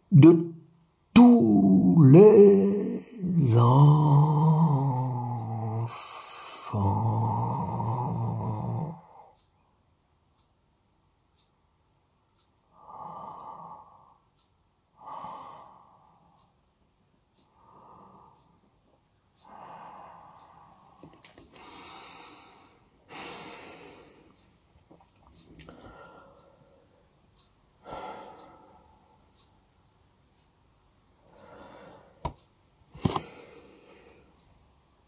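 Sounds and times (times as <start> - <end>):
man breathing: 12.7 - 14.2, 19.4 - 24.4, 25.6 - 27.1, 27.8 - 29.4, 31.2 - 32.2.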